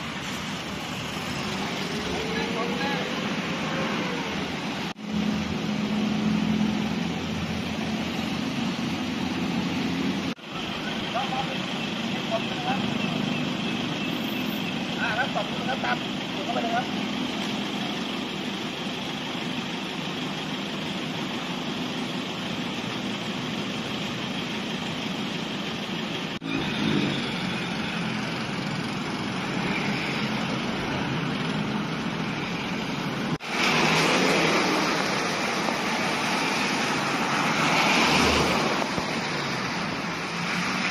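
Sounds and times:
car and truck engines: 0.0s - 40.9s
tyres swishing through water: 33.4s - 40.9s.

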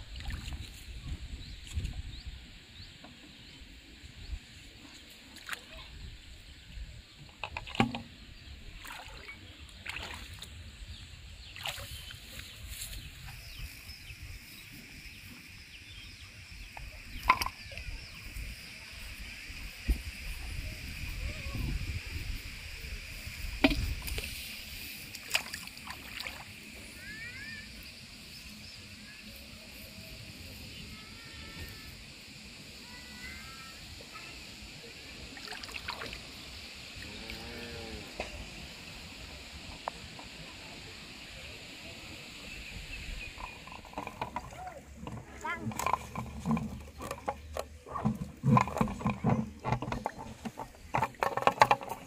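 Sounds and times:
light water splashes: 0.0s - 2.0s, 4.9s - 6.0s, 8.7s - 10.6s, 11.5s - 13.4s, 23.2s - 26.9s, 35.2s - 37.4s
wind rumble on microphone: 0.0s - 4.8s, 10.4s - 25.0s.

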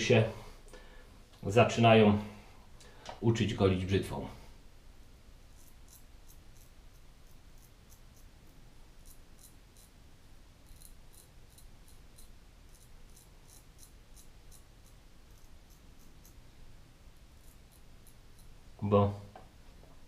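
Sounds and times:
razor scraping stubble: 5.4s - 18.7s.

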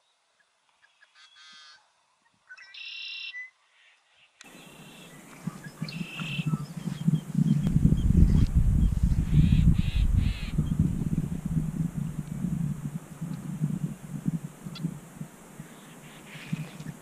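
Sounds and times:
short bird calls: 0.8s - 1.8s, 2.5s - 8.1s, 9.2s - 17.0s
low rumbling noise: 5.1s - 17.0s.

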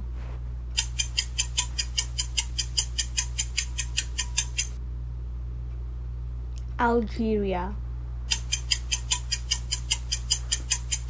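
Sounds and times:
rapid clock ticking: 0.8s - 4.8s, 8.3s - 11.0s.

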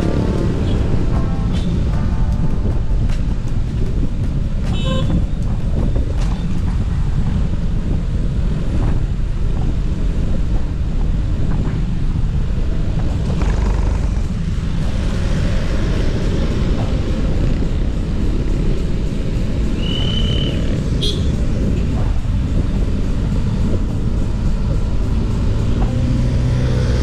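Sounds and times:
wind rumble on microphone: 0.0s - 27.0s
car horn toot: 4.7s - 5.2s, 20.1s - 21.4s.

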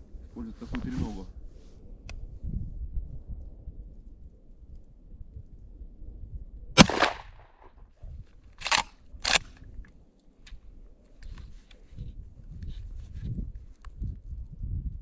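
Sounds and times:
shotgun shot: 6.8s - 7.7s
shotgun pump clacks: 8.6s - 9.5s.

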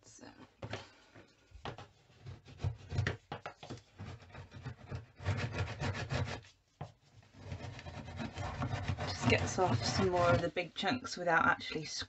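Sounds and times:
tool scraping sealant: 1.7s - 10.6s.

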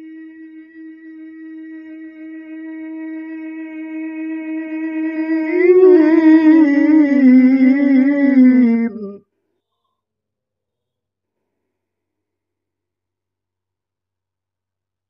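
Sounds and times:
man chanting into a microphone: 1.8s - 9.2s.

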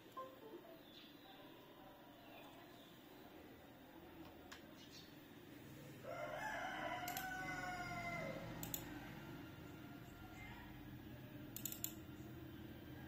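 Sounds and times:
computer mouse clicks: 7.0s - 7.3s, 8.6s - 8.9s, 11.5s - 12.0s.

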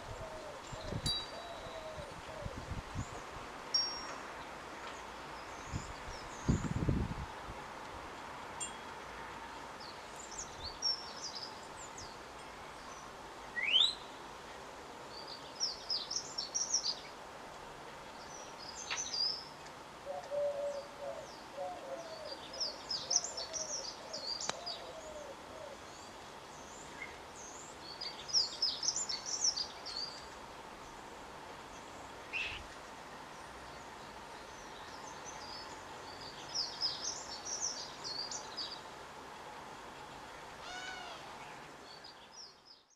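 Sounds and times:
low cooing: 20.1s - 22.3s.

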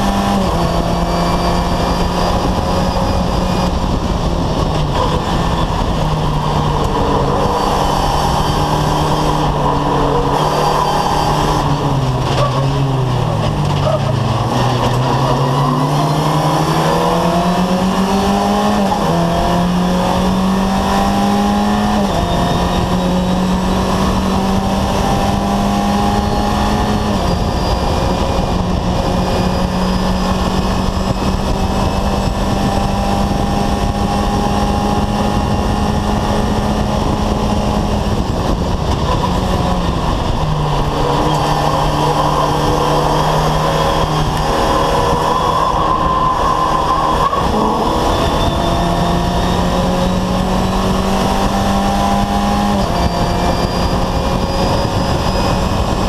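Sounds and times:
race car engine revving: 0.0s - 56.0s.

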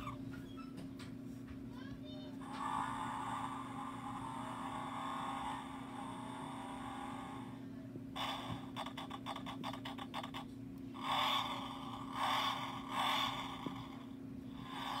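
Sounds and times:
rapid clicks from toy speaker: 8.2s - 10.5s.

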